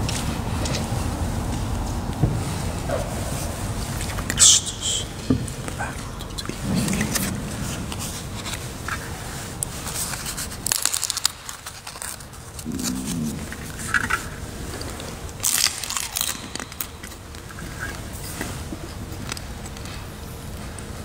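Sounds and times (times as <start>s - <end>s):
rustling and crinkling handling: 5.4s - 21.0s.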